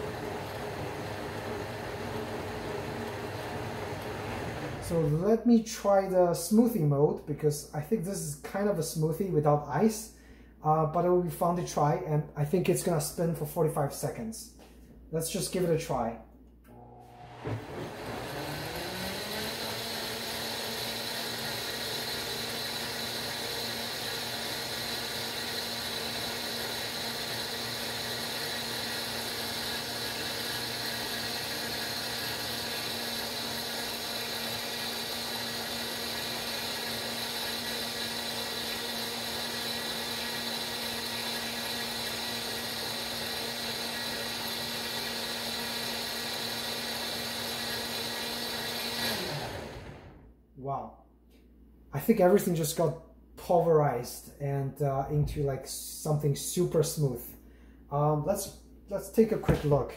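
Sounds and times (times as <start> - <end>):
blender motor running: 0.0 - 5.1, 16.7 - 50.3.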